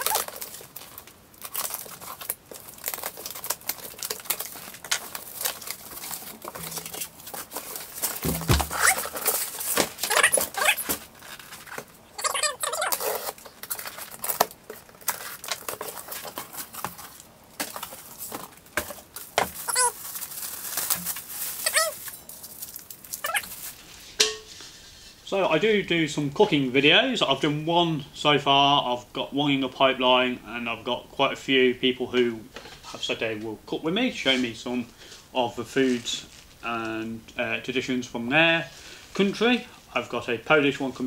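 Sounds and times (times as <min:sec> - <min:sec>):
plastic wrap crinkling: 0:00.0 - 0:25.0
cardboard flaps rustling: 0:04.3 - 0:11.9
short squeaks: 0:08.6 - 0:09.3.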